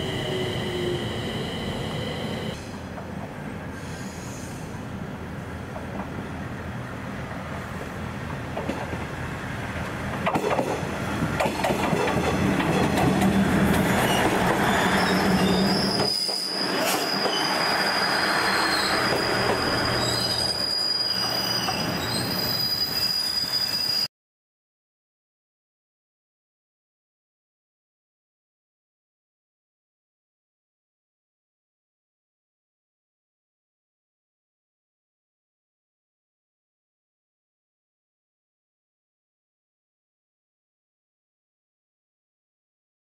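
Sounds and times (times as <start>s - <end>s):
train running: 0.0s - 24.1s
high-pitched wheel squeal: 14.0s - 24.1s.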